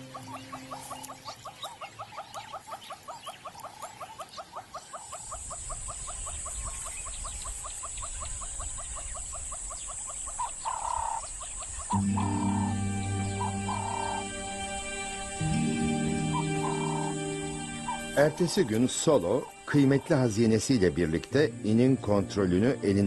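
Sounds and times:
music: 0.0s - 1.2s, 11.9s - 23.0s
high chirping animal calls: 0.0s - 20.8s
steady high hiss: 5.3s - 23.0s.

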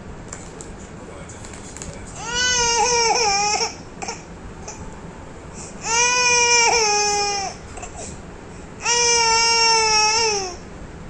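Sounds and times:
baby crying: 2.2s - 4.8s, 5.8s - 8.1s, 8.8s - 10.6s.

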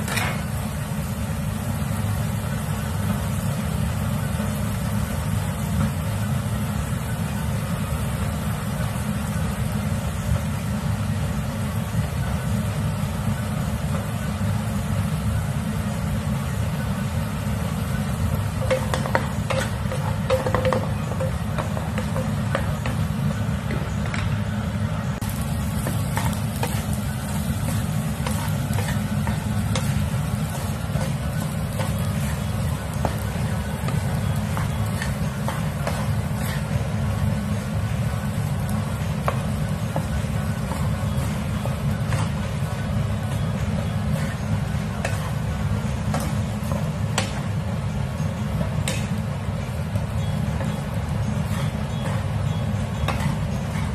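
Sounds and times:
food sizzling in a pan: 0.0s - 23.6s, 25.2s - 53.9s
spatula scraping a pan: 25.3s - 37.7s, 50.6s - 53.9s.

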